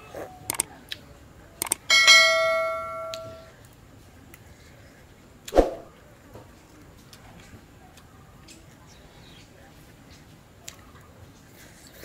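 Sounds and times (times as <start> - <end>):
quick mouse clicks: 0.5 - 0.7
bell ding: 1.9 - 3.5.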